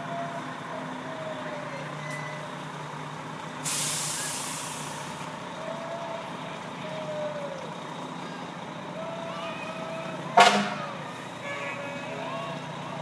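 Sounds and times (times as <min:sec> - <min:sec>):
fire engine running: 0:00.0 - 0:13.0
air brake hiss: 0:03.6 - 0:05.3.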